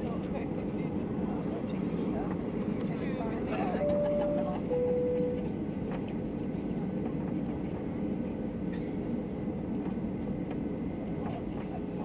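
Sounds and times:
airplane engines rumbling: 0.0s - 12.0s.

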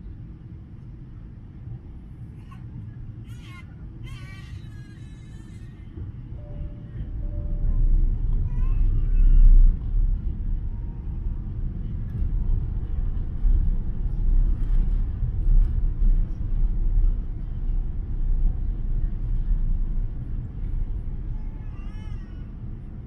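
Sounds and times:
airliner cabin engine rumble: 0.0s - 23.0s.

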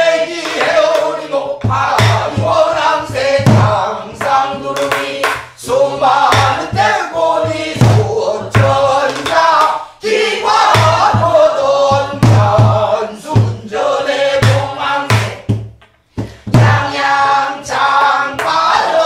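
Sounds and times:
women singing together: 0.0s - 15.6s, 16.4s - 19.0s.

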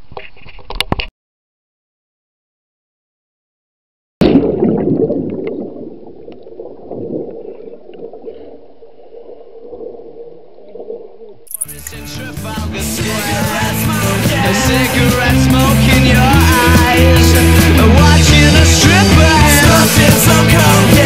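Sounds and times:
splash into water: 4.2s - 8.4s
underwater rumbling and bubbling: 4.2s - 11.5s.

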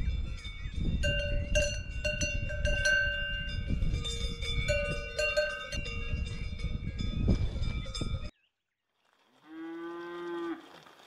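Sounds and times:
cowbell clanking: 0.0s - 8.3s.

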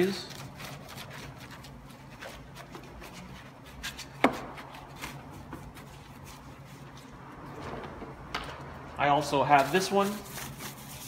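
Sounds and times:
brush scrubbing: 0.0s - 7.1s, 9.4s - 11.0s.

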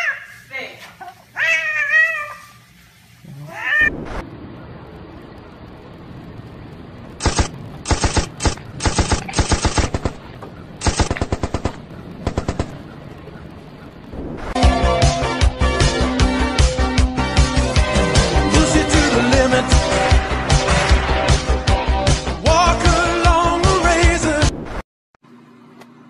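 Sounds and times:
cat meowing: 0.0s - 0.4s, 1.4s - 2.5s, 3.3s - 4.1s.

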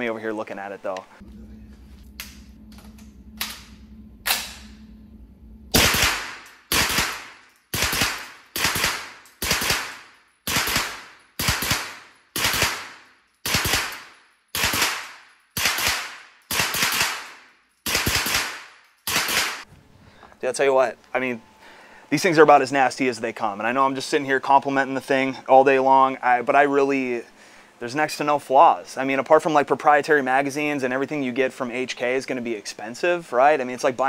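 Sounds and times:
suppressed gunshots with echo: 5.7s - 19.6s.

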